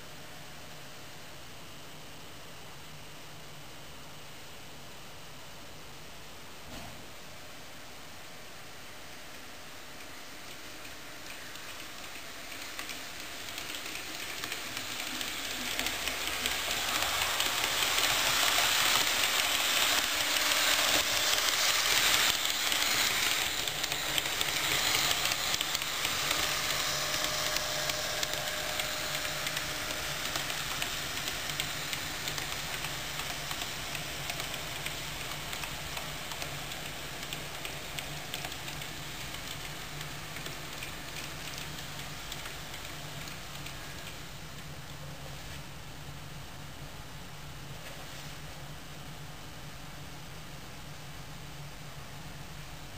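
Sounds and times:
model train rolling: 9.1 - 45.4.

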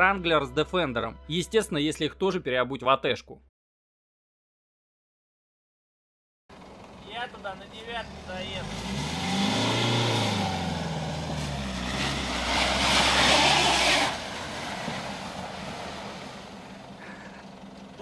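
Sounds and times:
engine revving hard: 8.0 - 17.2
tyres spinning in snow and mud: 8.4 - 18.0.

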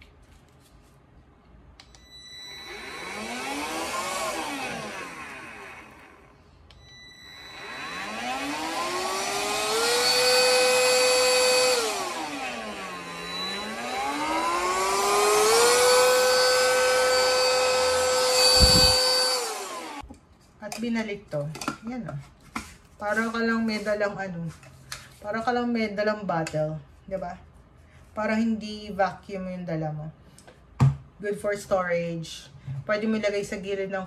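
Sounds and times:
handheld vacuum motor whine: 1.9 - 20.1.

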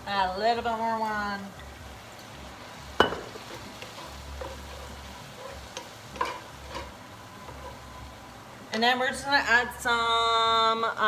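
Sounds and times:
leeks sizzling in a frying pan: 0.0 - 11.0
spatula scraping a pan: 3.3 - 8.0.

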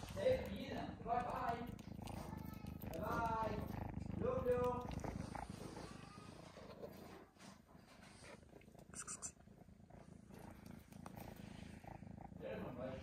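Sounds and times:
chewing clicks and smacks: 0.0 - 3.5
kitten purring: 0.0 - 13.0.

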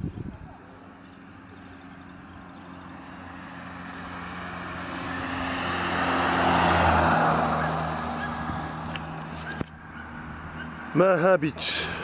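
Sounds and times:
car passing by: 2.4 - 11.0.

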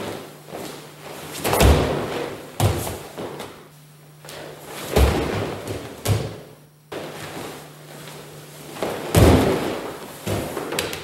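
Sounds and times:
steady low hum: 0.0 - 11.0
bodies thudding on foam mats: 0.5 - 3.6, 4.8 - 7.7, 8.7 - 11.0
shuffling of bodies and cloth: 6.9 - 10.8.

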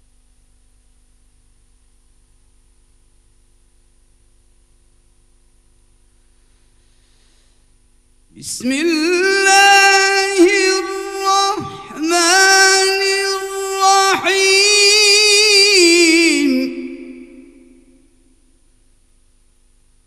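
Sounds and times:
short breaths: 6.4 - 7.7
man chanting into microphone: 8.3 - 18.0.

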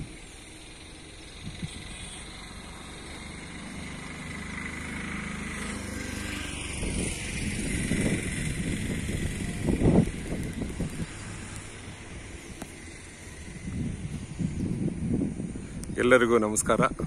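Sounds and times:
vehicle engine running: 0.0 - 15.9
gusty rumbling on microphone: 6.6 - 17.0.

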